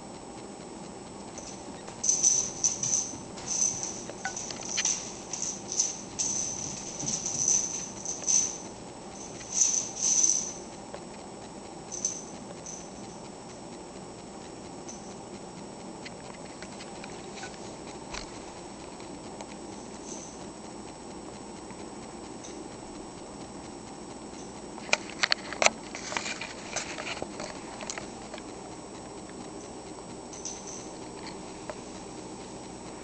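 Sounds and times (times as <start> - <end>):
dogs scuffling: 1.3 - 10.8.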